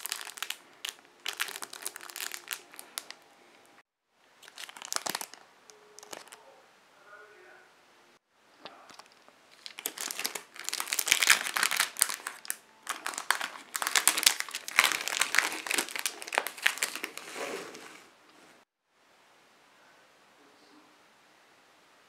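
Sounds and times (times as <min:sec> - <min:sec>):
plastic shrink wrap crinkling: 0:00.0 - 0:03.2, 0:04.4 - 0:06.4, 0:08.6 - 0:18.1.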